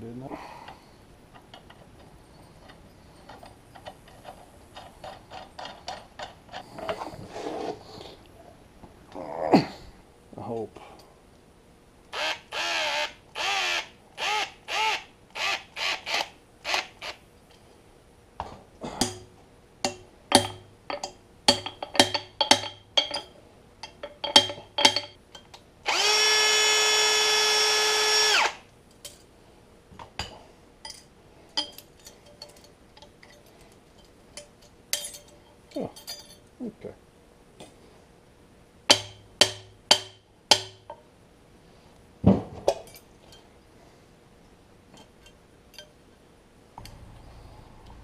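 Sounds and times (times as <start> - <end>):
cordless drill motor: 12.2 - 17.1, 25.9 - 28.6
ringing metal clicks and taps: 19.0 - 25.6, 30.2 - 36.5.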